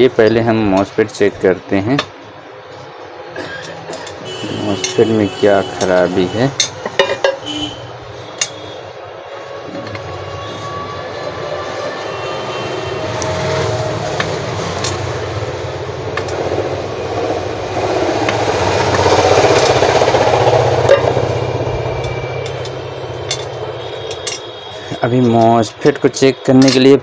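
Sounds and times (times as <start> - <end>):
passing vehicle rumble: 7.8 - 25.0.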